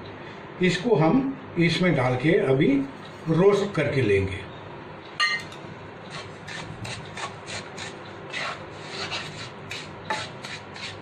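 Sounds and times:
spatula scraping frying pan: 6.1s - 11.0s.

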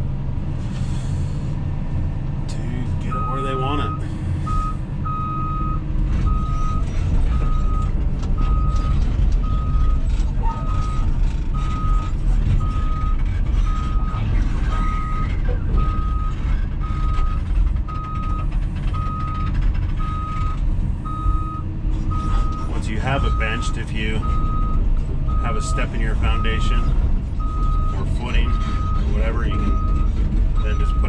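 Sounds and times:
excavator diesel engine rumble: 0.0s - 31.0s
alarm beeps: 3.0s - 10.0s, 19.0s - 31.0s.

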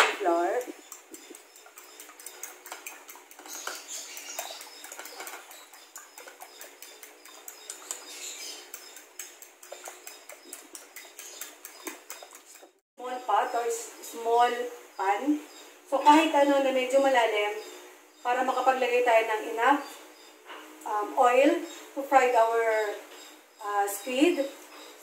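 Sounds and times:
fork beating eggs in a bowl: 0.0s - 12.8s.

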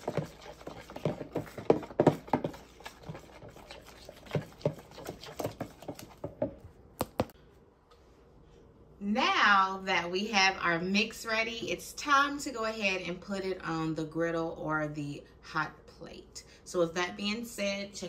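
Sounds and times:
spoon stirring batter in plastic tub: 0.0s - 7.4s.

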